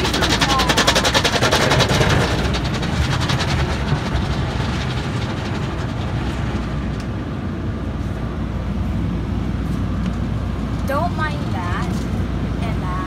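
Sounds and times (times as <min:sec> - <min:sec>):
water drumming on car body: 0:00.0 - 0:07.2
car wash rushing rumble: 0:00.0 - 0:13.0.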